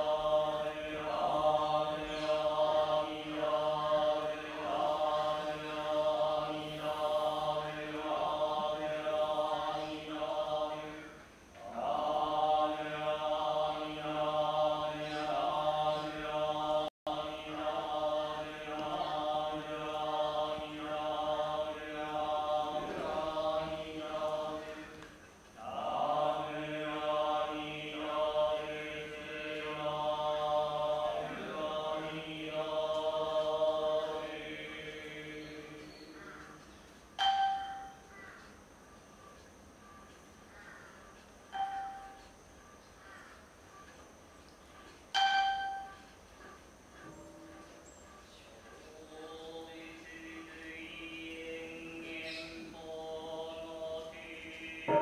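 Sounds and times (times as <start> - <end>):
monks chanting: 0.0 - 38.1, 45.2 - 55.0.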